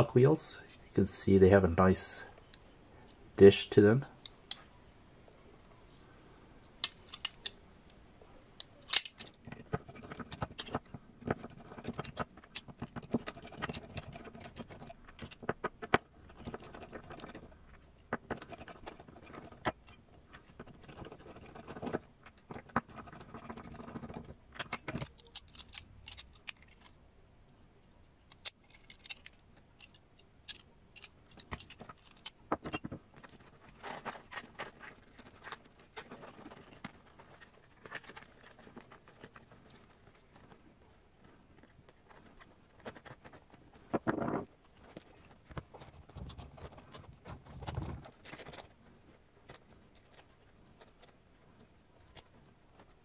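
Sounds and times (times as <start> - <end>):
metallic clicks of screws: 6.8 - 7.6, 8.6 - 20.0, 23.5 - 27.0, 28.0 - 33.4.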